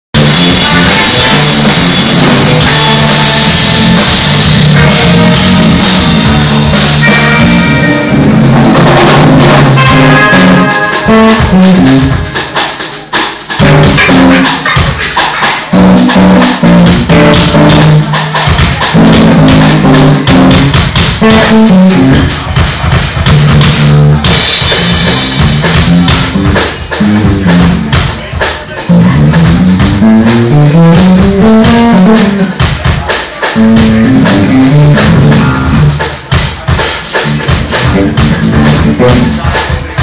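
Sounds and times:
bass guitar line: 0.1s - 40.0s
live band playing: 0.2s - 40.0s.

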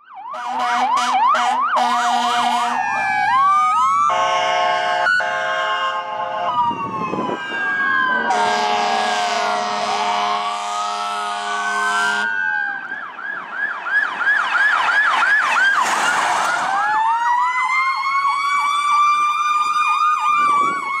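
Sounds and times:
electronic sirens yelping: 0.0s - 21.0s
rising siren wail: 0.0s - 21.0s
steady siren wail: 0.0s - 21.0s
fire truck air horn: 0.3s - 6.8s, 8.1s - 12.4s.

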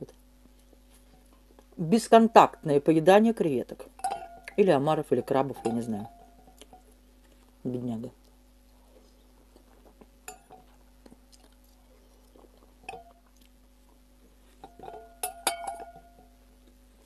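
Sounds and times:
chewing bread: 0.1s - 1.8s, 8.2s - 14.6s
spoon clinking against glass bowl: 3.9s - 7.0s, 10.2s - 10.7s, 12.9s - 13.2s, 14.6s - 16.4s.

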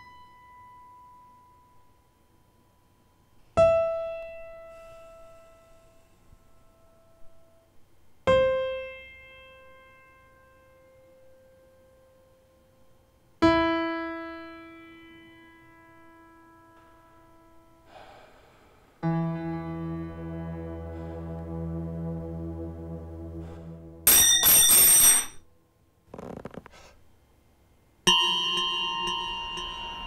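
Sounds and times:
sustained chord with low drone: 19.0s - 24.3s
piano notes ringing: 19.0s - 25.4s, 28.1s - 30.0s.

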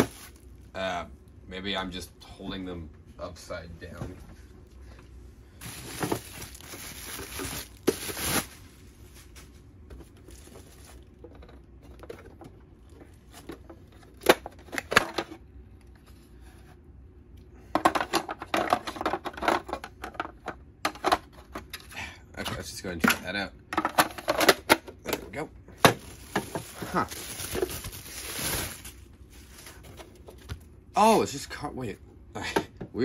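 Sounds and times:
bubble-wrap tearing: 0.0s - 0.5s, 5.6s - 9.3s, 25.9s - 29.9s.

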